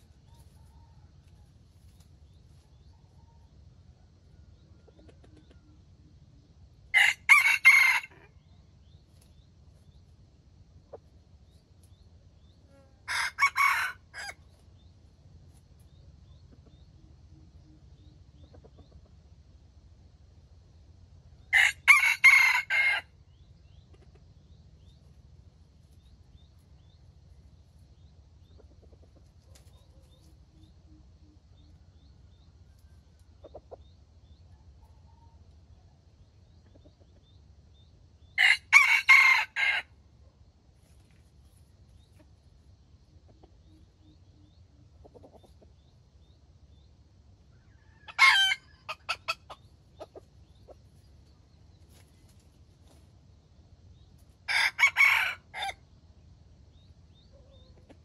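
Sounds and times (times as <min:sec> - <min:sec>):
chicken clucking: 0:04.5 - 0:06.5, 0:15.8 - 0:19.4, 0:23.7 - 0:25.0, 0:28.4 - 0:31.8, 0:32.8 - 0:35.4, 0:36.3 - 0:37.5, 0:41.9 - 0:46.0, 0:47.6 - 0:53.0, 0:57.2 - 0:58.0
rooster crowing: 0:06.9 - 0:08.4, 0:13.0 - 0:14.4, 0:21.5 - 0:23.1, 0:38.4 - 0:39.9, 0:47.6 - 0:49.2, 0:54.5 - 0:55.8.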